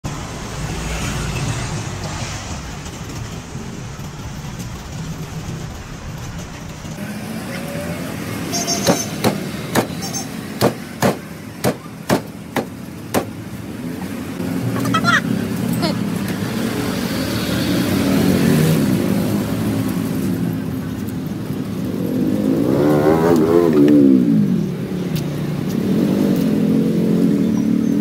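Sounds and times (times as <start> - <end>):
street and traffic rumble: 0.0 - 28.0
cleaver chopping on wooden block: 8.9 - 10.0, 10.6 - 13.3.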